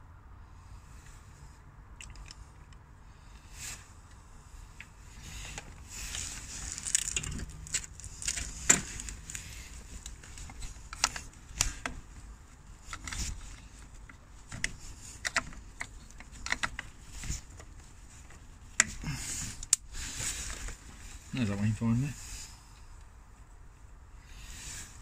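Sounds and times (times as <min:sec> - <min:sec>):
cloth rustling: 0:05.1 - 0:21.5.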